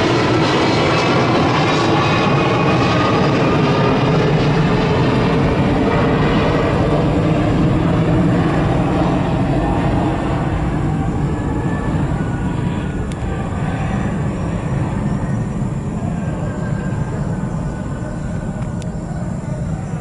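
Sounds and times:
jet engines deep rumble: 0.0s - 20.0s.

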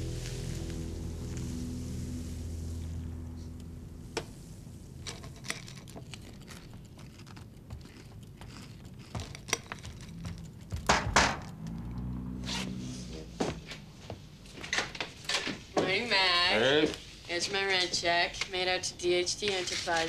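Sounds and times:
louder knocks: 10.8s - 11.5s.

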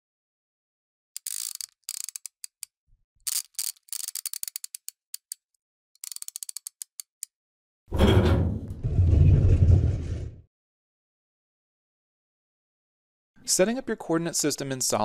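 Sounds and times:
mechanical clicks and ratchet ticks: 1.2s - 7.3s.

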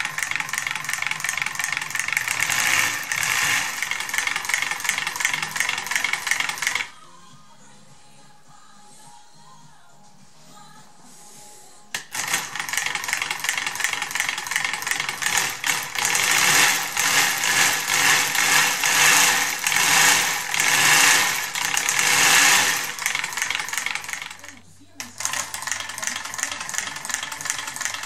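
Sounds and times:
model engine clattering: 0.0s - 6.9s, 12.0s - 28.0s
plastic parts rattling: 12.0s - 28.0s.

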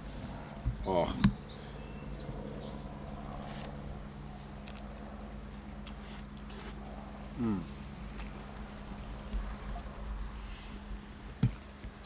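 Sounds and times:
high-pitched whine: 0.0s - 12.0s
low hum: 0.0s - 12.0s
person murmuring mmm: 7.3s - 7.8s.

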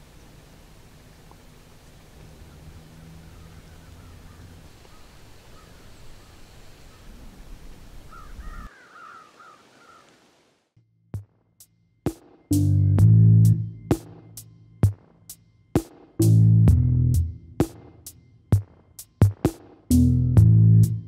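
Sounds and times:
low wind rumble: 0.0s - 8.7s
crows cawing: 2.3s - 7.2s, 8.0s - 10.3s.

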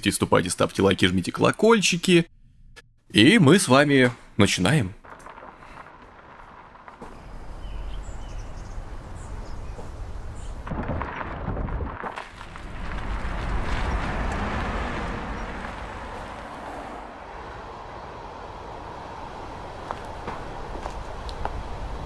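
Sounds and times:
car and road noise: 5.1s - 10.7s, 12.0s - 22.0s.

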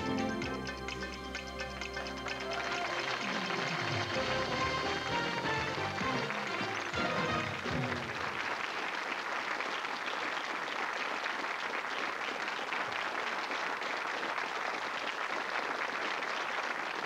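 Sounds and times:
theme tune: 0.0s - 8.4s
audience applauding: 0.0s - 17.0s.

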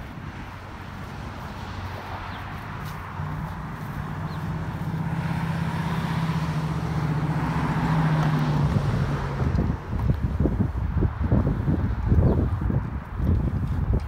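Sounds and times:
cars passing: 0.0s - 14.0s.

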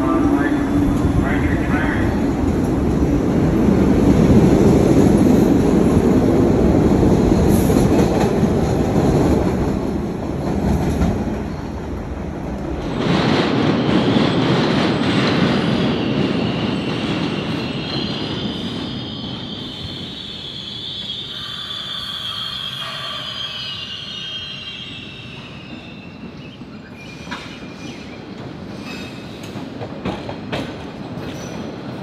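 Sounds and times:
subway train rumbling on rails: 0.0s - 32.0s
high wheel squeal: 16.7s - 28.1s.

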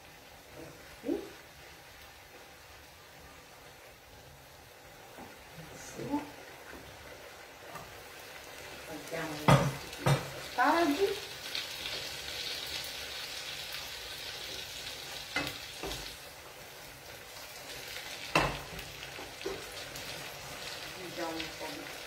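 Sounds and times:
risotto sizzling in a frying pan: 0.0s - 22.0s
spoon knocking on pan: 9.4s - 10.4s, 18.3s - 19.7s.

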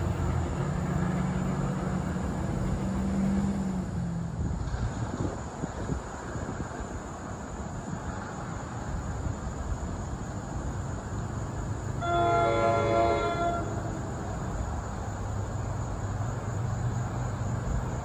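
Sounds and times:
train horn chord: 12.0s - 14.0s.

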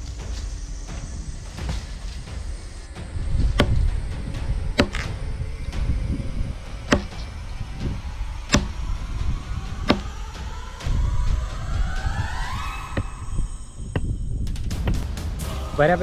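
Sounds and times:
axe chopping wood: 3.6s - 3.8s, 4.8s - 5.1s, 6.9s - 7.2s, 8.5s - 8.7s, 9.9s - 10.1s.

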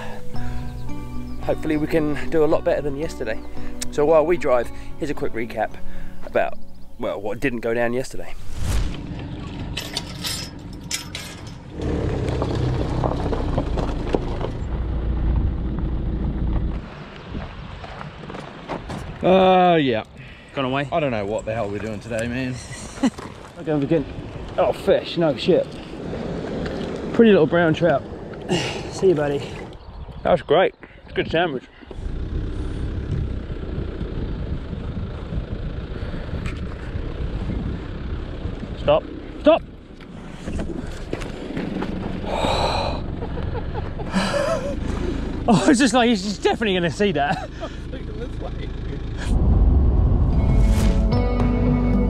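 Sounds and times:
tyres rumbling on gravel: 0.0s - 30.6s, 31.2s - 51.1s
vehicle running from inside cabin: 9.0s - 17.3s, 32.0s - 52.0s
metal chain latch clinking: 9.7s - 11.8s.

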